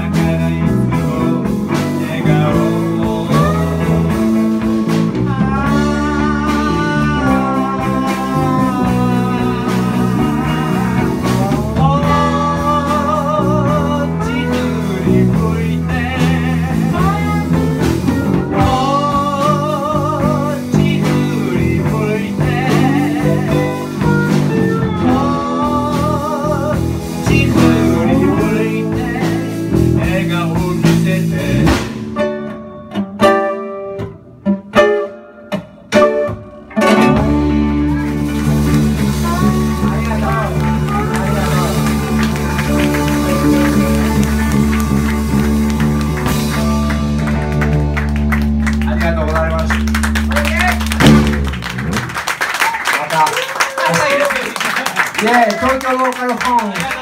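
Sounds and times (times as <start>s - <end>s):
person singing: 0.0s - 32.0s, 36.8s - 47.2s
electric guitar: 0.0s - 55.8s
bass line: 0.0s - 56.1s
ukulele: 30.6s - 46.5s.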